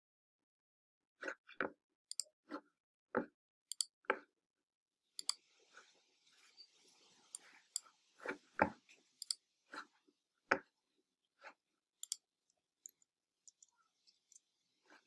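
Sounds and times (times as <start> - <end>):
computer mouse clicks: 2.1 - 2.3, 3.7 - 3.9, 5.2 - 5.4, 9.2 - 9.4, 12.0 - 12.2.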